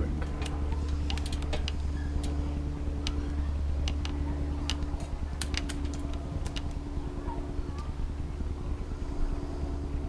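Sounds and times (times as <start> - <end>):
low hum: 0.0 - 10.0
bicycle chain clicking: 0.4 - 2.4.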